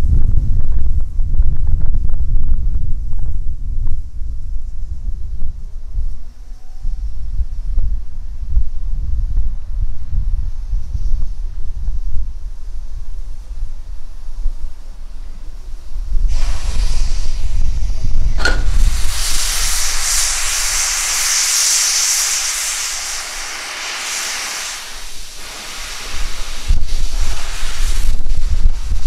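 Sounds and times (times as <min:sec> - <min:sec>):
low rumble: 0:00.0 - 0:23.6
steam hissing: 0:15.2 - 0:29.0.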